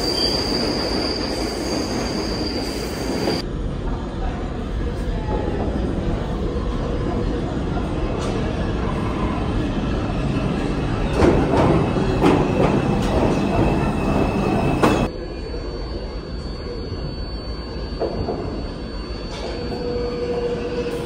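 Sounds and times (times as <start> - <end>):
train wheels squealing: 0.0 - 3.4, 8.8 - 21.0
subway train rumbling: 0.0 - 21.0.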